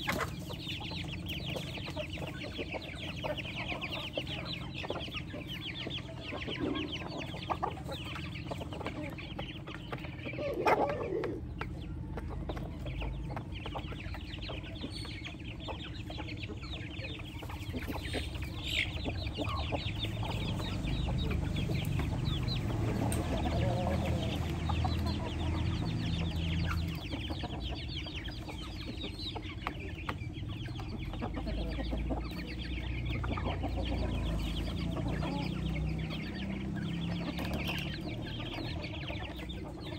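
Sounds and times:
chicks peeping: 0.0 - 39.9
hens and roosters clucking: 0.0 - 39.9.

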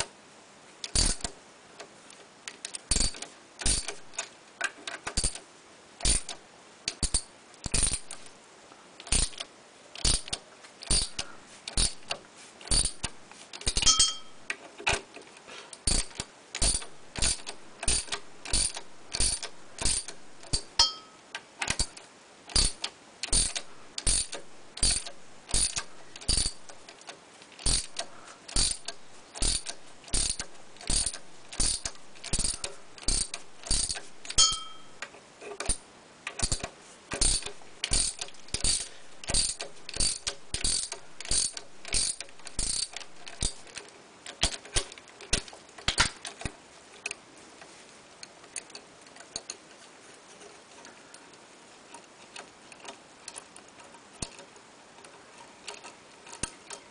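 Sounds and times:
socket ratchet clicking: 0.8 - 1.4, 2.5 - 4.3, 4.9 - 5.4, 6.0 - 8.3, 9.0 - 15.1, 15.8 - 20.9, 21.6 - 34.9, 35.6 - 46.6.

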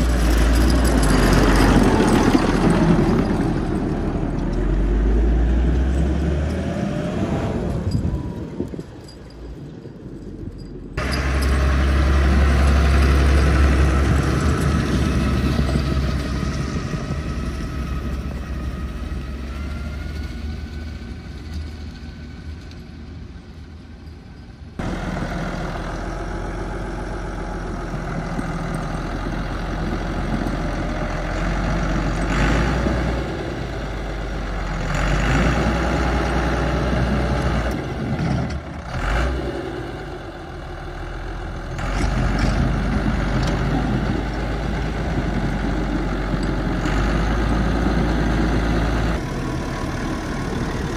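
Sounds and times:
tractor diesel engine revving: 0.0 - 8.7, 11.0 - 22.6, 24.8 - 50.9.

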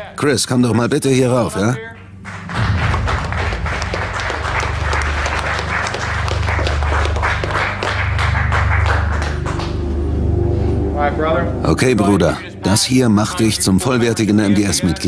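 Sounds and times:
background music with deep bass: 0.0 - 15.0
rapid irregular clapping: 1.9 - 10.0.

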